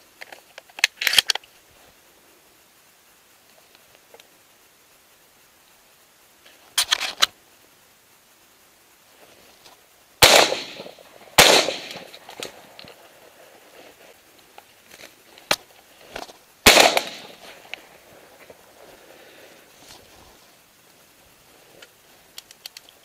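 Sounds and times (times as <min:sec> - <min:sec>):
shotgun shots with echo: 0:10.2 - 0:12.2, 0:16.6 - 0:17.5.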